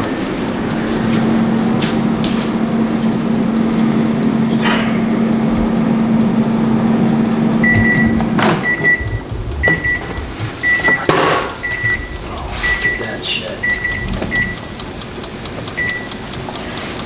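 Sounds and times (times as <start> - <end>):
air fryer fan hum: 0.0 - 17.0
short electronic beep: 7.6 - 14.7.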